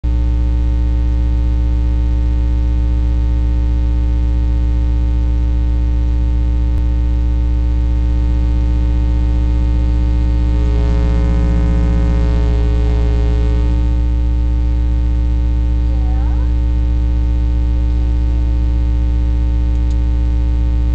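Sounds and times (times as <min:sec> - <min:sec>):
electrical mains hum: 0:00.0 - 0:20.9
faint wavering sound: 0:08.3 - 0:14.1.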